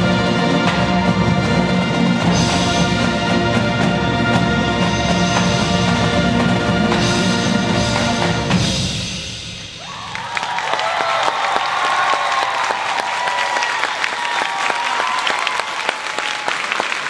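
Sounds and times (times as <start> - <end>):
marching band brass chords: 0.0 - 10.4
drum strokes: 0.0 - 10.6.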